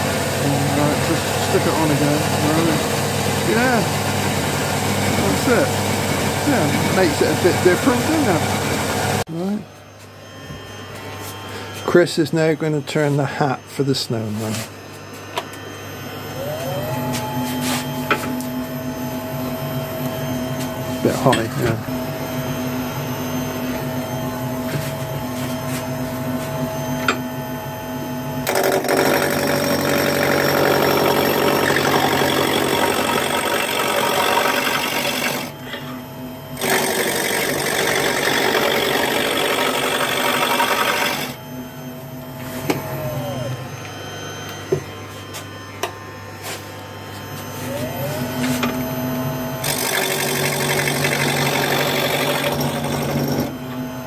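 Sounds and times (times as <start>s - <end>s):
gouge cutting spinning wood: 0.0s - 9.2s, 28.4s - 35.6s, 36.6s - 41.4s, 49.6s - 53.6s
wood lathe motor hum: 0.0s - 9.3s, 28.4s - 44.8s, 47.2s - 54.0s.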